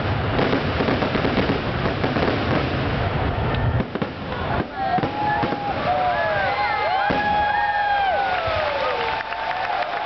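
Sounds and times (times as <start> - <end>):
fireworks crackling bursts: 0.0 - 10.0
crowd cheering and whistling: 4.3 - 10.0.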